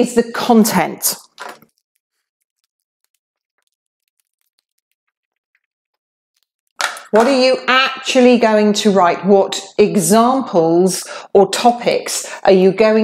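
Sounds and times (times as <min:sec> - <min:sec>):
marker pen scratching whiteboard: 0:01.2 - 0:05.7.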